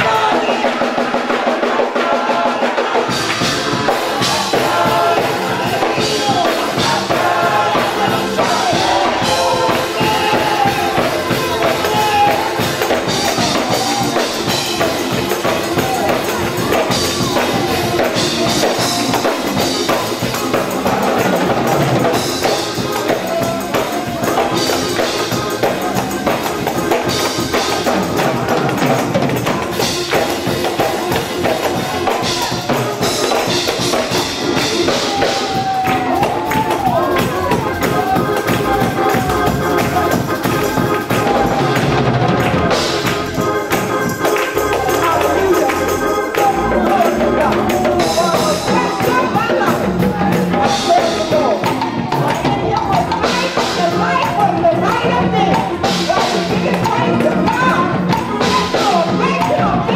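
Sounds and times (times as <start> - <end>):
group singing gospel: 0.0 - 59.9
percussion: 0.0 - 59.9
hand clapping: 10.0 - 53.6.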